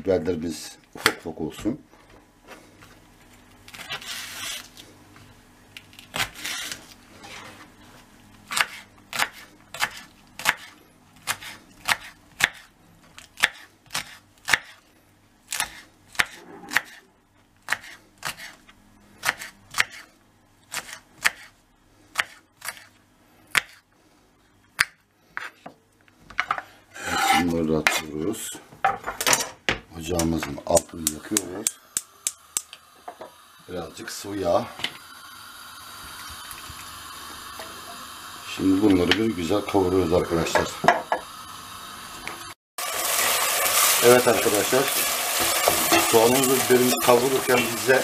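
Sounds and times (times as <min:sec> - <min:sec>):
knife chopping on wooden board: 0:15.6 - 0:17.0.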